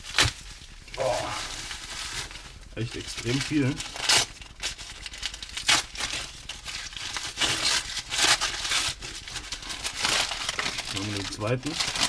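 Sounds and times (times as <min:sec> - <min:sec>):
wrapping crinkling: 0:00.0 - 0:12.0
adhesive tape tearing: 0:03.3 - 0:12.0.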